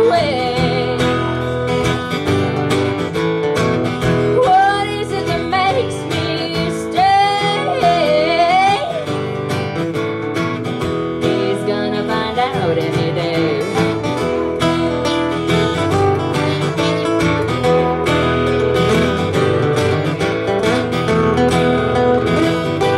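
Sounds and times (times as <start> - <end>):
strummed acoustic guitar: 0.0 - 22.9.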